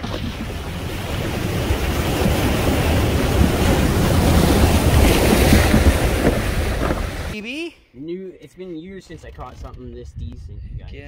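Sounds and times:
rushing water-like noise: 0.0s - 7.4s
wind buffeting microphone: 0.0s - 7.4s, 9.2s - 11.0s.

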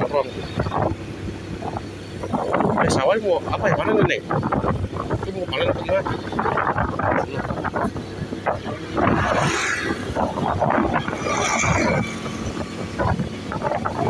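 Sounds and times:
motorbike engines: 0.0s - 14.0s.

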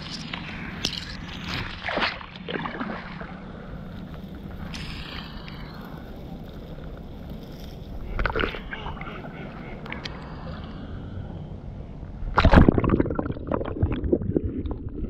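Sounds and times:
steady low rumble: 0.0s - 15.0s
dry grass rustling: 3.8s - 9.6s.

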